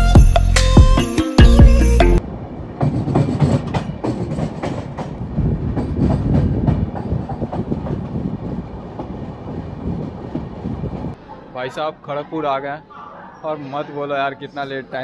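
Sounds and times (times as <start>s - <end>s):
train coaches rumbling: 2.2s - 11.5s
train wheels clattering: 2.6s - 11.2s.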